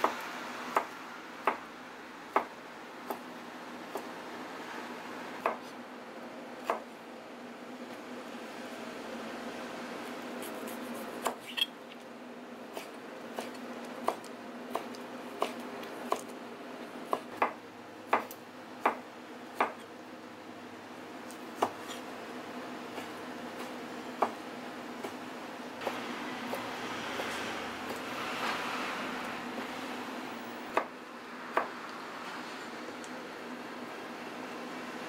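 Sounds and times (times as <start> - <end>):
steady background hum: 0.0 - 35.0
knife chopping on plastic board: 12.8 - 16.3, 21.6 - 22.0.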